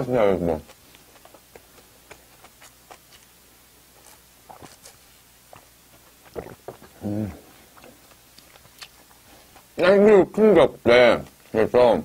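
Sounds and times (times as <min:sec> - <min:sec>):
mouth chewing smacks: 0:00.4 - 0:10.2
gulps of drink: 0:06.3 - 0:08.0.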